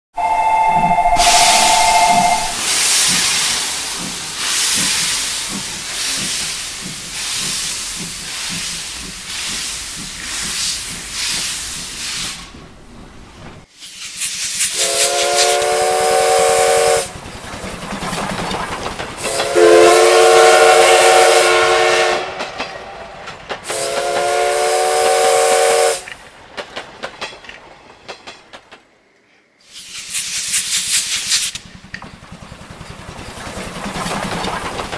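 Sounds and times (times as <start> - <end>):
chime whistle blasts: 0.2 - 2.6
steam locomotive chuffing: 0.2 - 13.4, 14.0 - 27.4, 29.7 - 34.9.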